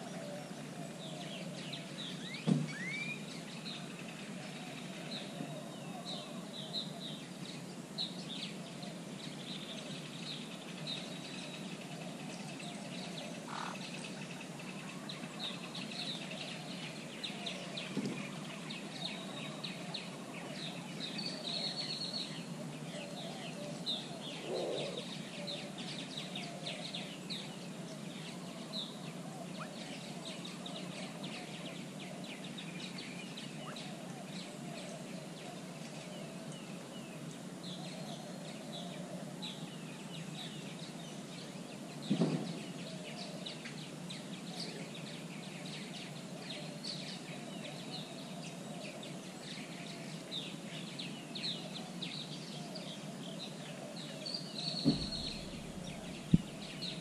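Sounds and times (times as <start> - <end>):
dull thump: 2.4 - 2.8, 42.1 - 42.6, 54.8 - 56.6.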